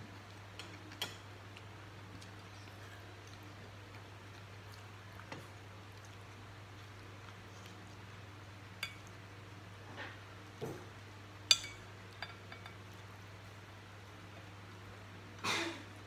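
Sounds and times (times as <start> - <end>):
low steady hum: 0.0 - 16.0
spoon clinking on ceramic bowls: 11.5 - 12.8.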